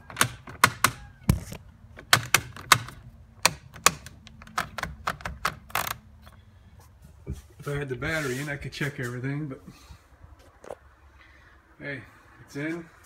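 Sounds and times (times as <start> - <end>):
sharp clicks and knocks: 0.0 - 6.0.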